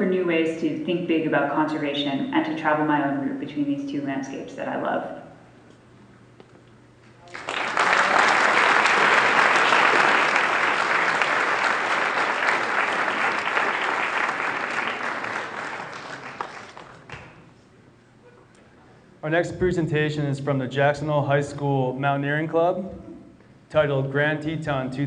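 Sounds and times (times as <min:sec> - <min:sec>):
audience applauding: 0:07.2 - 0:17.4.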